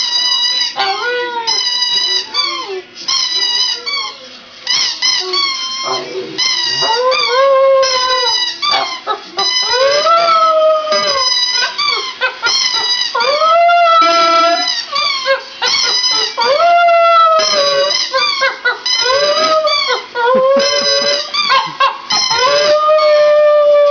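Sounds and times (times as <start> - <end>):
dog howling: 5.2 - 12.5, 13.2 - 15.5, 16.2 - 23.9.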